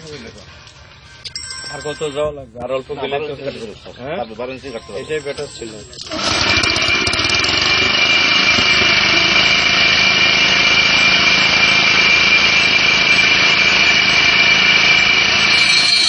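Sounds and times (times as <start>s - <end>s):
core drill cutting concrete: 4.8s - 16.0s.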